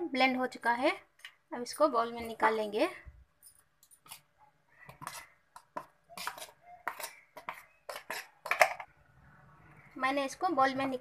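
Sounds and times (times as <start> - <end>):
metal jar clinking and scraping: 7.9 - 8.9.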